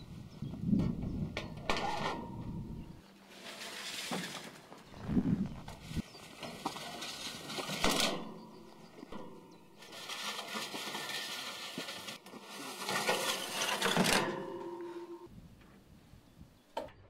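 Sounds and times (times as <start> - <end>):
burst of noise: 4.9 - 6.0.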